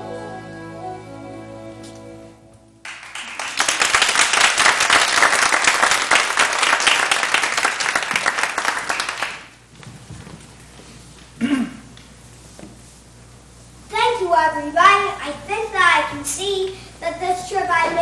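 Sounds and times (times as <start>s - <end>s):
music: 0.0s - 2.8s
audience applauding: 2.8s - 9.6s.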